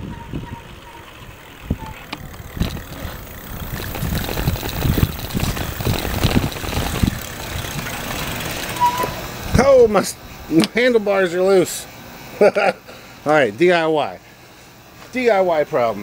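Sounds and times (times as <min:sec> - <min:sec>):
handlebars rattling and knocking: 0:00.0 - 0:09.7
wind on microphone: 0:01.6 - 0:08.3.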